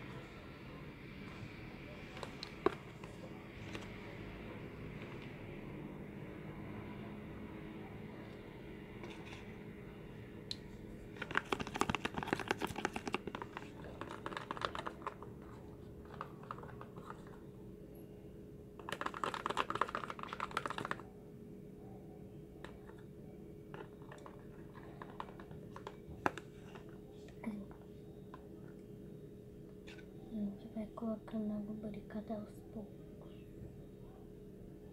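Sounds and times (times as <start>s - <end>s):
plastic containers clicking and crinkling: 2.1s - 4.0s, 11.1s - 17.4s, 18.8s - 21.0s, 23.7s - 28.8s
plastic containers knocking: 11.2s - 17.4s, 18.8s - 21.0s, 23.7s - 26.9s.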